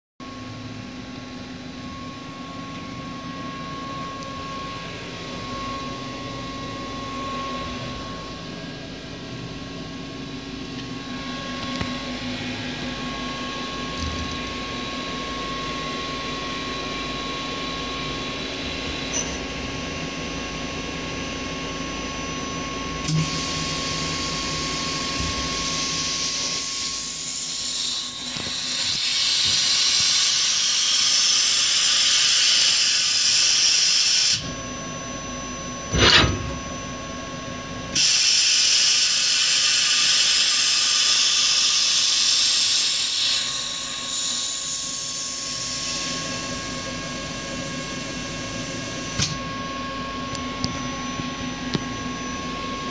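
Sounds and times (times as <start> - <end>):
machine hum and whine: 0.2 - 52.9
hiss: 25.6 - 34.4, 38.0 - 46.4.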